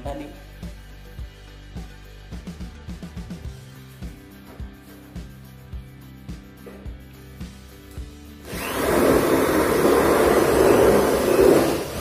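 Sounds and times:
electric drill boring steel: 8.4s - 12.0s.

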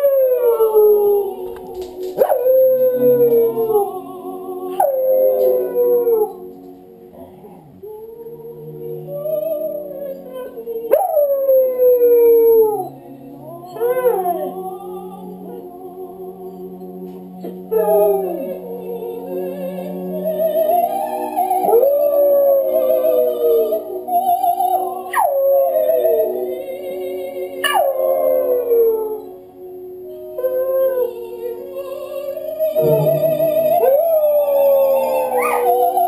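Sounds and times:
dog howling: 0.0s - 1.4s, 2.2s - 6.5s, 9.2s - 15.6s, 27.6s - 29.4s, 32.6s - 36.0s
operatic soprano singing: 0.0s - 36.0s.

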